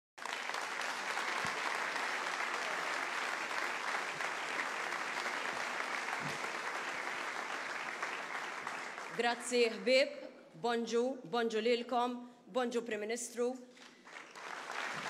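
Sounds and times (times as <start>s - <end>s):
audience applauding: 0.2s - 9.5s, 13.8s - 15.0s.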